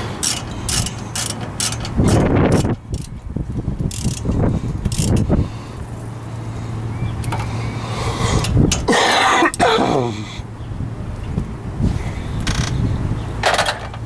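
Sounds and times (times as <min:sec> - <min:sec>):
ratchet clicking: 0:00.0 - 0:03.2, 0:03.8 - 0:05.3, 0:12.4 - 0:12.8.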